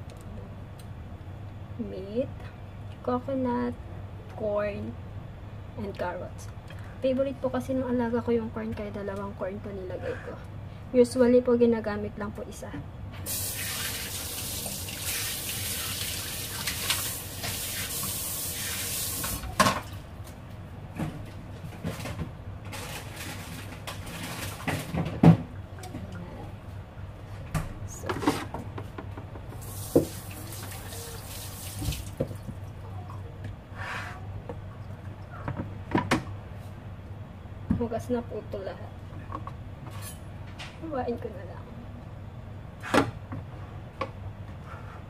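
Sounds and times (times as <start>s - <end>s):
kitchen tap running: 13.3s - 19.6s, 29.6s - 32.6s.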